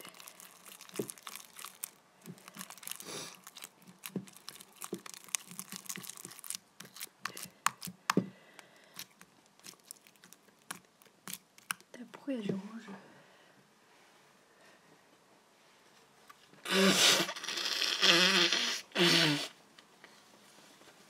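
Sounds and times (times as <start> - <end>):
slime sticky clicks and crackles: 0.0 - 8.2, 8.9 - 11.9.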